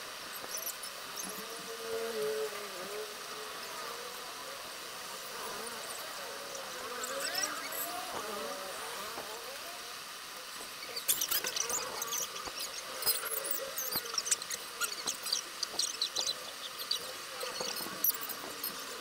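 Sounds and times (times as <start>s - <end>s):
high-pitched chirps and squeaks: 10.8s - 18.9s.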